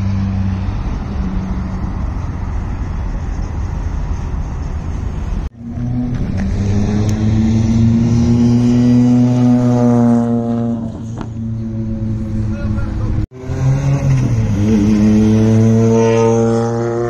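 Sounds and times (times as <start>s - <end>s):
rally car engine and tyre noise: 0.0s - 17.0s
rally car engine drone: 0.0s - 17.0s.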